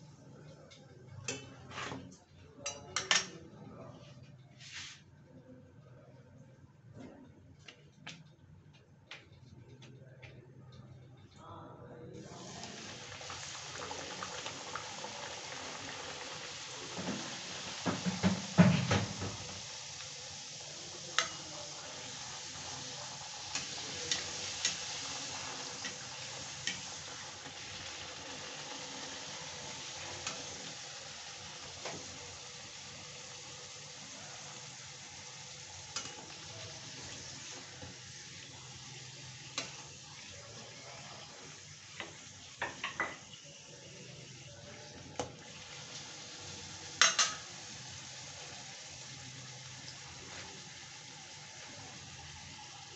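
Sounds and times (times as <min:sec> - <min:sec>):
bread deep-frying in sizzling oil: 0:12.2 - 0:52.9
metal spatula knocking on pan: 0:17.8 - 0:19.4.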